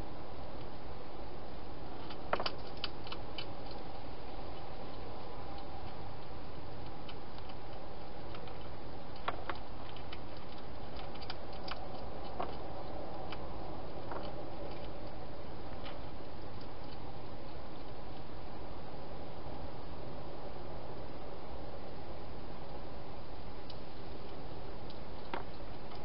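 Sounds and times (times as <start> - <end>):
steady hiss: 0.0 - 26.0
hedgehog chewing: 2.0 - 19.8.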